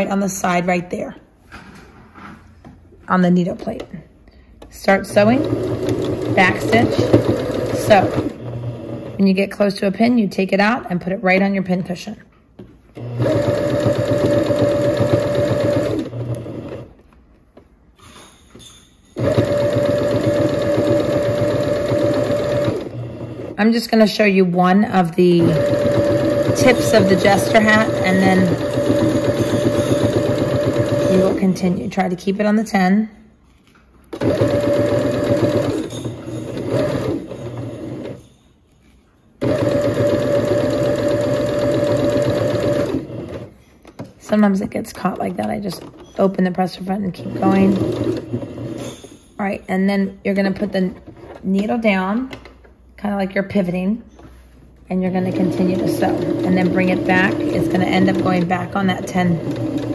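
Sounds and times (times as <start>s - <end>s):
electric sewing machine stitching: 4.9s - 9.3s, 13.0s - 17.0s, 19.2s - 23.6s, 25.2s - 31.8s, 34.2s - 38.2s, 39.4s - 43.5s, 47.1s - 48.9s, 55.1s - 59.9s.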